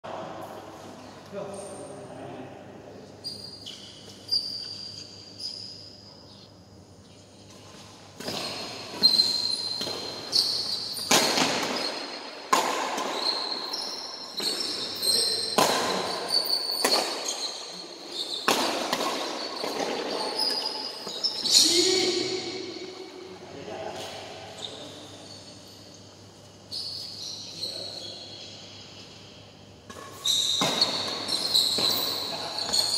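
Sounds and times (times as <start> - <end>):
shoes squeaking on court floor: 3.1 - 23.1, 23.9 - 29.2, 29.9 - 32.9
rackets hitting shuttlecock: 8.2 - 17.6, 18.3 - 20.5, 29.8 - 32.9.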